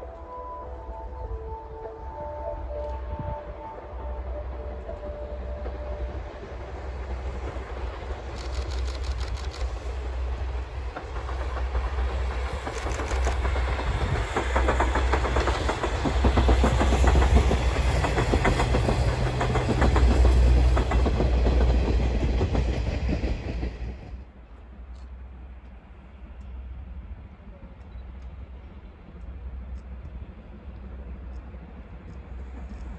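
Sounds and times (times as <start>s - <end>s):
steam locomotive rumble: 0.0s - 32.9s
wheels clacking over rail joints: 7.4s - 24.1s.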